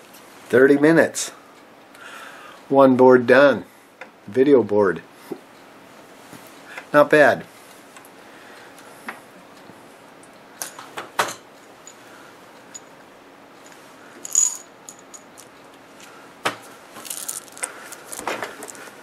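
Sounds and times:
capacitors rattling in a cup: 17.0 - 19.0.

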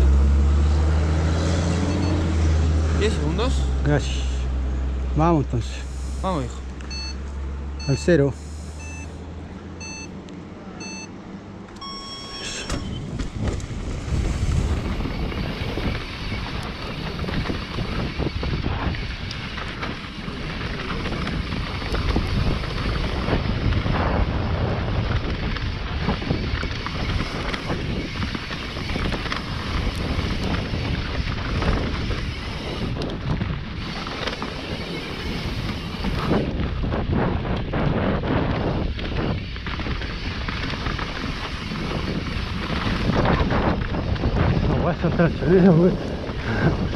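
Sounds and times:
electronic timer beeps: 1.8 - 2.3, 6.9 - 7.2, 7.8 - 8.1, 8.8 - 9.2, 9.8 - 10.2, 10.8 - 11.1, 11.8 - 13.1
tyres on dirt: 11.6 - 46.9
wind rushing over microphone: 12.7 - 46.9
bike knocking and rattling: 12.8 - 46.9.

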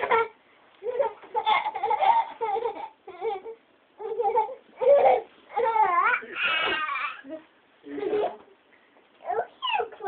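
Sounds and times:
small child whining: 9.2 - 10.0.

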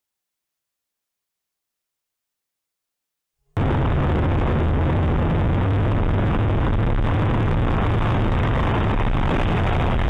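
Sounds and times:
car road and engine noise: 3.6 - 10.0
strong low hum: 3.6 - 10.0.

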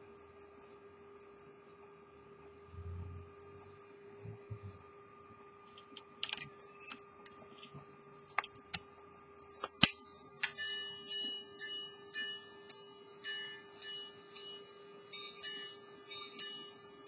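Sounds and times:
watch gong chiming: 10.5 - 17.0.

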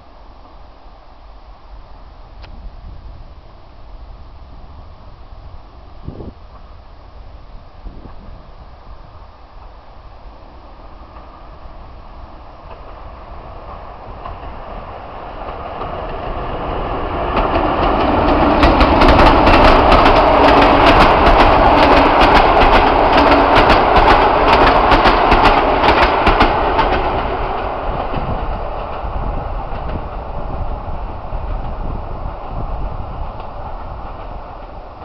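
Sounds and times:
passenger train passing: 0.0 - 35.0
wheels clattering over rail joints: 17.0 - 30.6.

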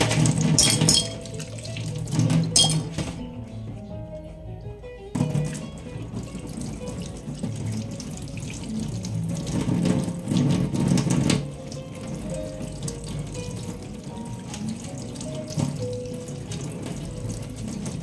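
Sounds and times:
tap water splashing into sink: 0.0 - 3.2, 5.1 - 18.0
soft background music: 0.0 - 18.0.

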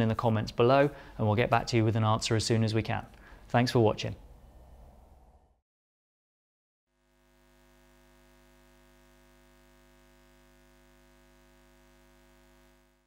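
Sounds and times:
hum of held tones: 6.9 - 13.0.

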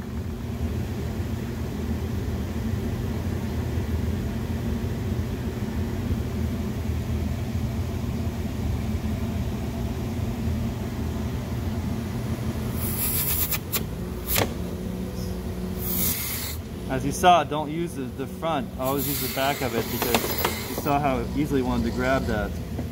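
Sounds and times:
low machine hum: 0.0 - 22.9
rake scraping spinning buffing wheel: 18.8 - 22.6.

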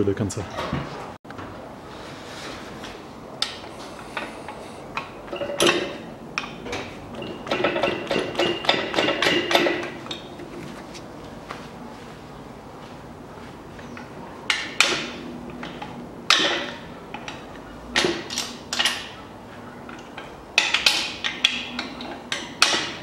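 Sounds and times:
metal clanks and clinks: 5.2 - 10.4, 14.5 - 17.4, 19.9 - 23.0.

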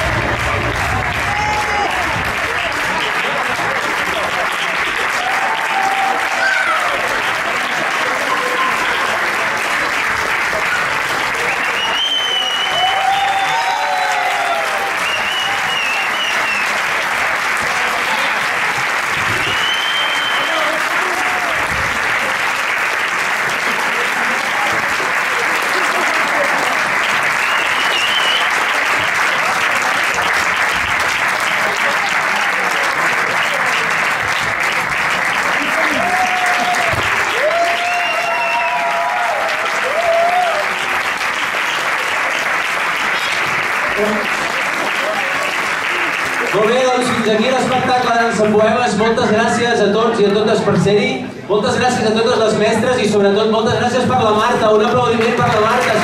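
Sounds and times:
voices cheering: 0.0 - 3.7, 4.7 - 9.3, 10.6 - 16.8, 35.4 - 41.0
audience applauding: 0.0 - 49.2, 54.0 - 56.0.

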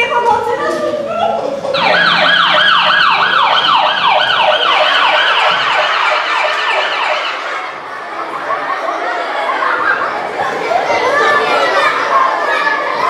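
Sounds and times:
siren wailing: 1.8 - 7.8.

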